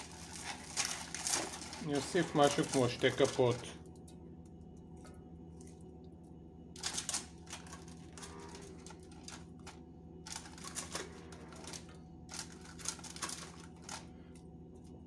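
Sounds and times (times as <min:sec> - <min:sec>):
plastic tub crackling: 0:00.0 - 0:03.7
low steady hum: 0:00.0 - 0:15.0.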